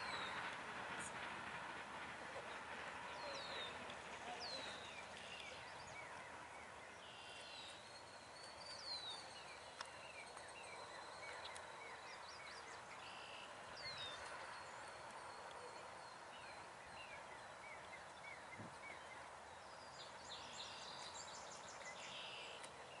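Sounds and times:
faint birdsong: 0.0 - 23.0.

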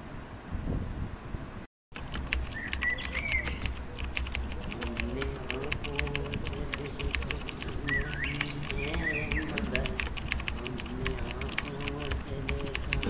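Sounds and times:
keyboard typing clicks: 1.9 - 13.0.

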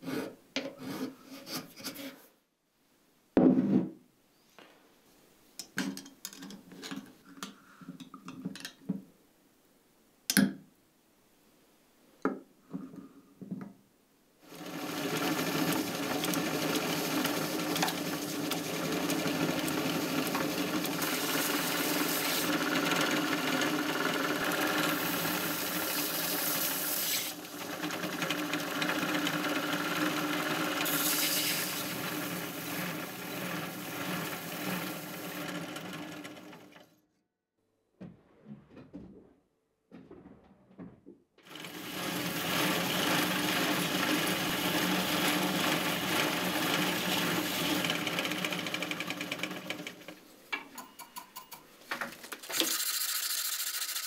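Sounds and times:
belt sander grinding metal: 14.5 - 36.8, 41.5 - 50.2, 52.4 - 54.0
bench grinder grinding metal: 14.5 - 36.8, 41.5 - 50.2.

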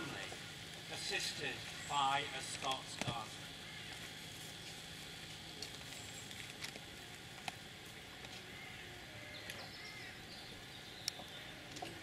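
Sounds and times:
faint steady hiss: 0.0 - 12.0
faint bird chirps: 8.5 - 11.7.

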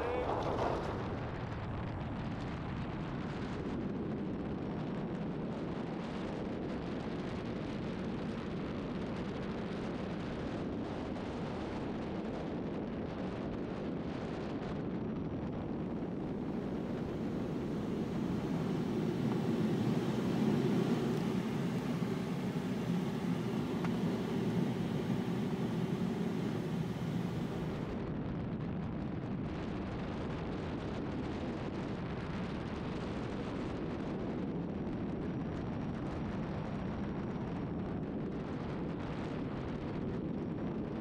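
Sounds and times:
wind roaring past camera: 16.4 - 28.0.

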